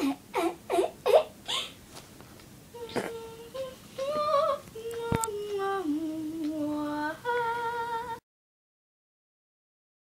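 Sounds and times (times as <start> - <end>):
girl singing: 2.7 - 8.2.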